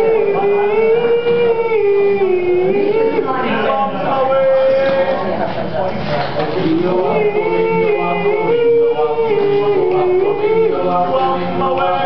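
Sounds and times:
low pulsing bass voice: 0.0 - 4.3, 6.6 - 11.7
boys singing in harmony: 0.0 - 5.5, 6.5 - 12.0.

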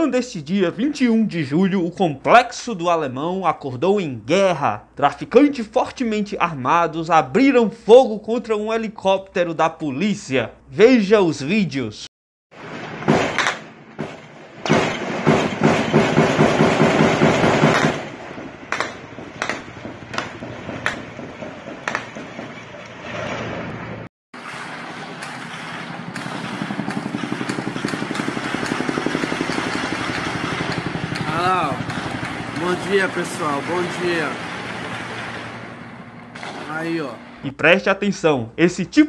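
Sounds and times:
gunfire shots: 12.6 - 22.5, 24.4 - 35.6, 36.3 - 37.0
helicopter rotor drone: 25.2 - 37.4.

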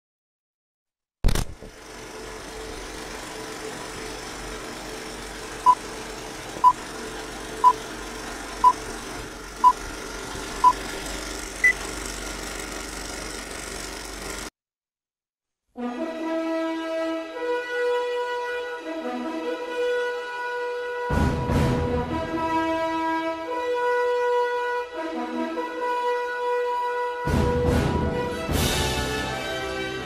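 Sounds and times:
film projector whirring: 1.3 - 14.5.

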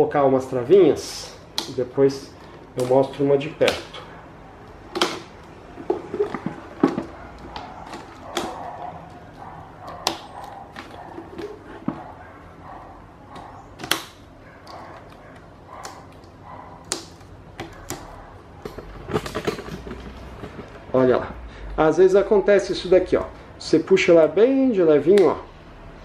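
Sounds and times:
plastic clips snapping shut: 4.9 - 5.5, 13.3 - 14.8.

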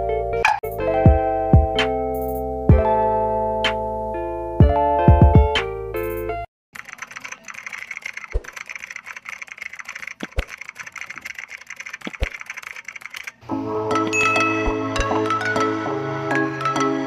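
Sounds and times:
music: 0.0 - 6.5, 13.5 - 17.0
keyboard typing clicks: 6.8 - 13.4.

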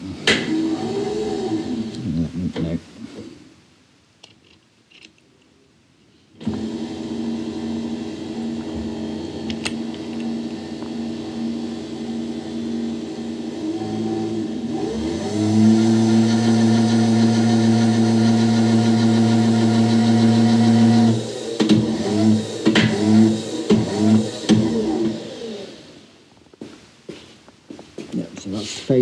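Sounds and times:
milling machine motor running: 0.3 - 2.0, 6.4 - 26.1.

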